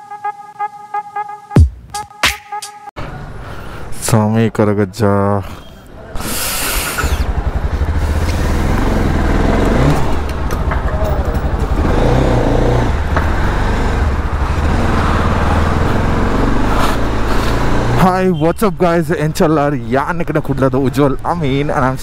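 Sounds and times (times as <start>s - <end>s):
motorcycle engine starting and running: 6.4s - 18.1s.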